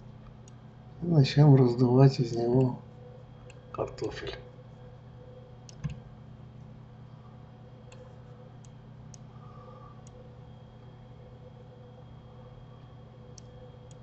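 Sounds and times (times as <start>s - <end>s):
low electrical hum: 0.0s - 14.0s
computer mouse clicks: 5.7s - 6.0s.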